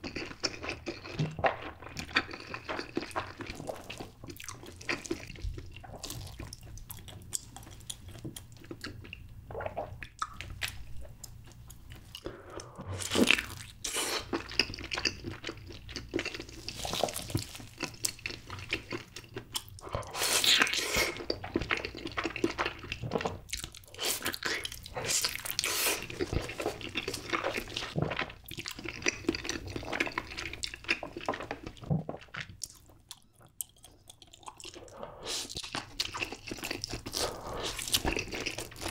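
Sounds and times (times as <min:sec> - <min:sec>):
person biting and chewing: 0:32.7 - 0:38.9.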